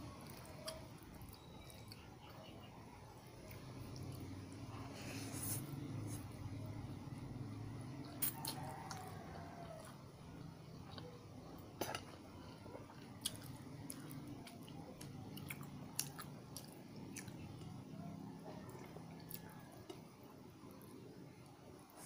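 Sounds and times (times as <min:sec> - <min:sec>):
steady low hum: 0:00.0 - 0:22.0
chewing noodles: 0:00.1 - 0:06.1, 0:08.0 - 0:10.1, 0:10.7 - 0:20.7.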